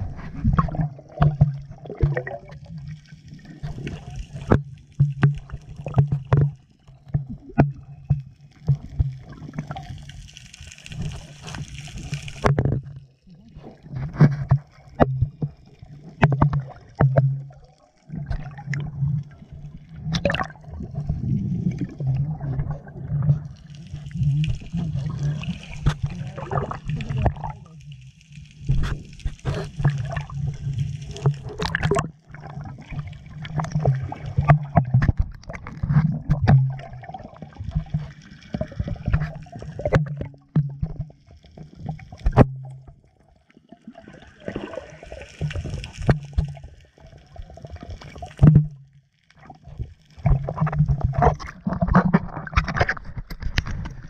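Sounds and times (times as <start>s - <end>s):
water gurgling underwater: 0.0s - 54.0s
hissy bubbling: 18.0s - 34.8s.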